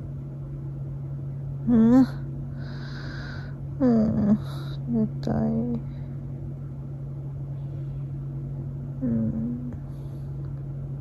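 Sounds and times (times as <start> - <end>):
low background hum: 0.0 - 11.0
woman humming: 1.6 - 2.3, 3.8 - 5.8, 9.0 - 10.0.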